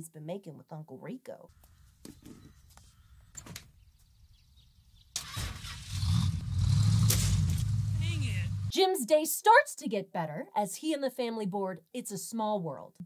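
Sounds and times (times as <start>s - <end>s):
loud steady rumble: 5.4s - 8.7s.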